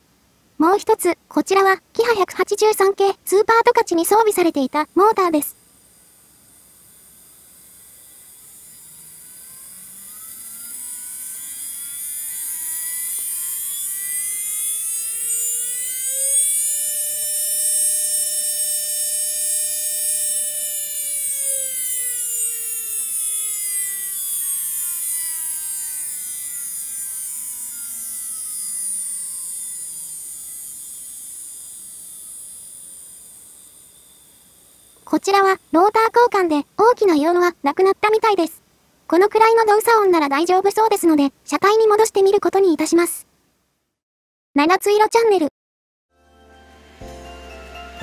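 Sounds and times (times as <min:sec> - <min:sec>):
model train motor whine: 0:03.3 - 0:38.4.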